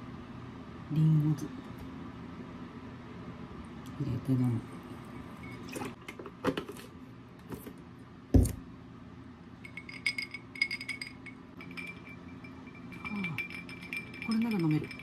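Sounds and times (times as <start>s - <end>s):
heavy thump on a counter: 8.3s - 8.6s
ice cubes clinking in a glass: 9.7s - 15.0s.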